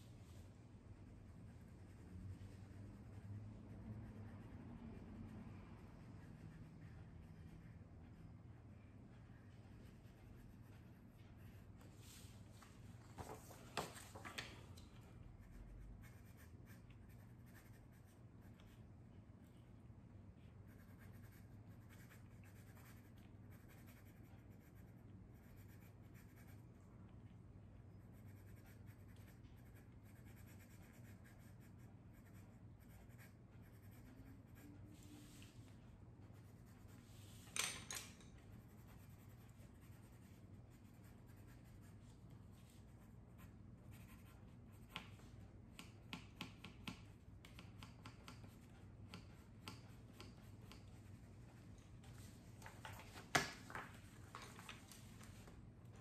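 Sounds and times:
low steady hum: 0.0 - 56.0
pencil scratching on paper: 0.8 - 12.3, 15.0 - 18.9, 20.5 - 26.7, 28.0 - 35.6, 36.2 - 37.5, 38.3 - 51.7.

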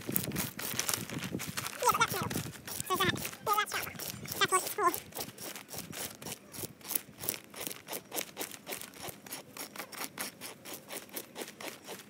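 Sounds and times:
plastic bag crinkling: 0.0 - 9.2
fish scaler rasping scales: 0.0 - 12.0.

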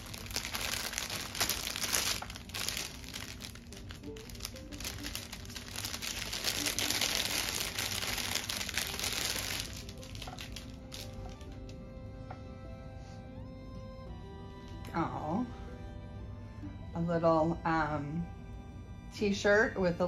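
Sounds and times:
plastic bag crinkling: 0.0 - 11.8
soft background music: 0.0 - 20.0.

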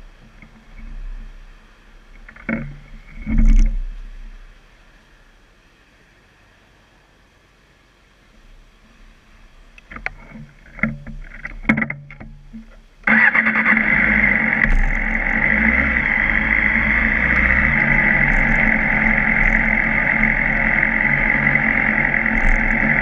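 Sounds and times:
motorcycle engine running: 13.1 - 23.0.

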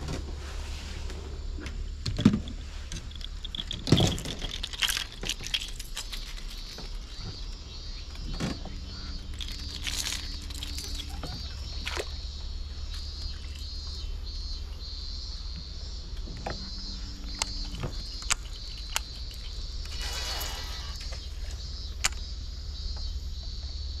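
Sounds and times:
insects buzzing: 0.0 - 24.0
low steady hum: 0.0 - 24.0
sharp clicks: 17.2 - 22.3.

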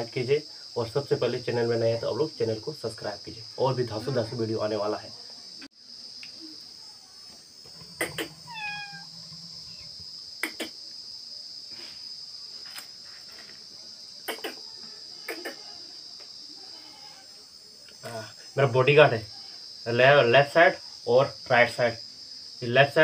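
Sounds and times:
insects chirring: 0.0 - 23.0
kitten meowing: 8.4 - 9.1.

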